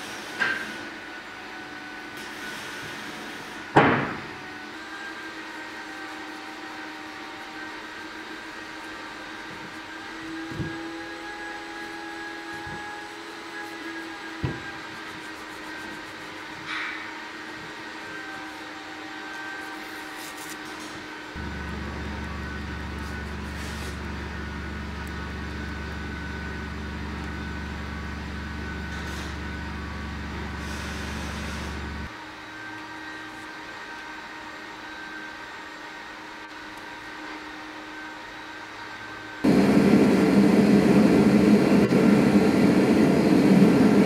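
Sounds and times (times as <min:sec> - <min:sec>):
steady background hum: 0:02.9 - 0:34.8, 0:35.6 - 0:44.0
loud deep hum: 0:21.4 - 0:28.1, 0:39.5 - 0:44.0.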